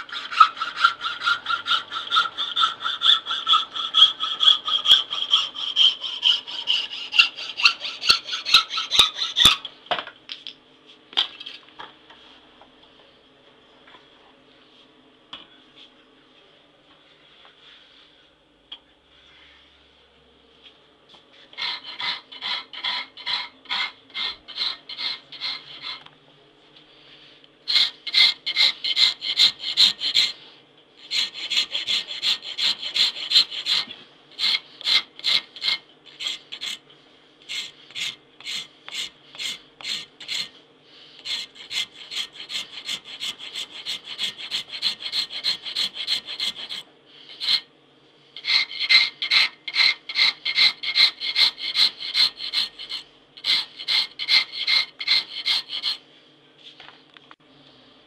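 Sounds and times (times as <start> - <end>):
file rasping on knife blade: 0.0 - 9.7, 21.6 - 26.0, 27.7 - 30.4, 31.0 - 36.8, 37.5 - 40.6, 41.2 - 47.7, 48.4 - 56.0.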